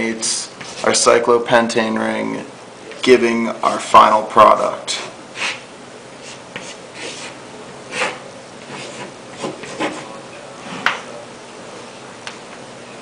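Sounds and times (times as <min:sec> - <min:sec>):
chalk scratching on blackboard: 0:06.2 - 0:10.8.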